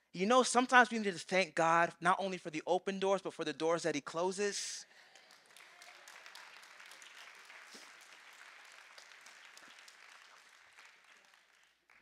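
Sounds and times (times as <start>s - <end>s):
congregation applauding: 4.9s - 12.0s.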